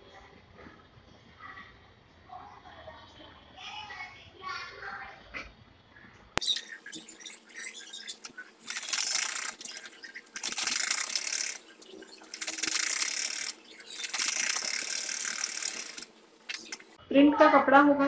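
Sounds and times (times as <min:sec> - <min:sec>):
sewing machine stitching: 0:06.9 - 0:17.0.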